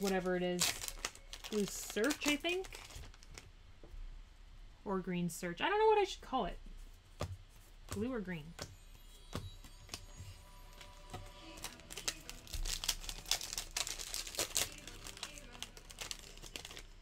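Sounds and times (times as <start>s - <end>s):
foil wrapper crinkling and tearing: 0.0s - 3.5s, 9.7s - 17.0s.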